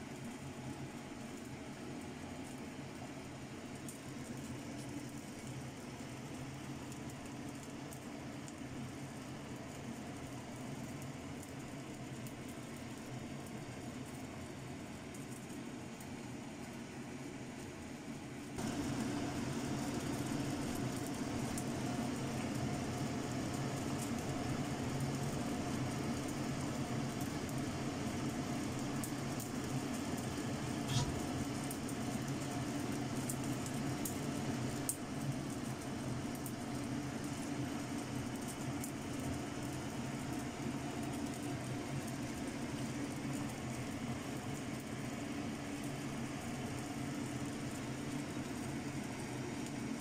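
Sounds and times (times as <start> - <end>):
water boiling: 0.0 - 50.0.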